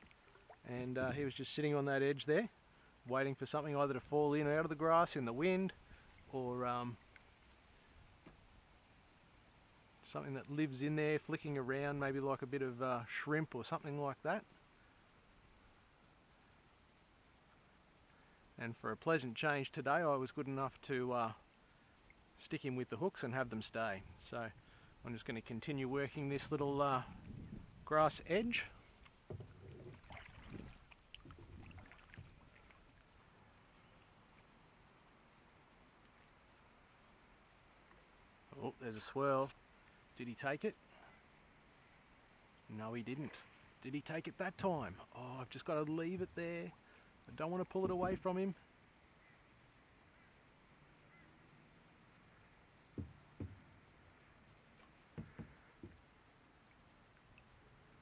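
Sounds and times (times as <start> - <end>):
high-pitched insect drone: 14.4 - 58.0
kayak paddle splashes: 28.4 - 33.1.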